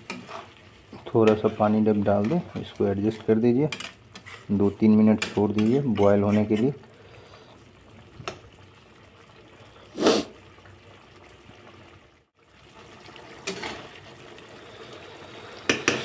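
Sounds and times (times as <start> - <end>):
spatula stirring gravy: 0.0 - 7.5.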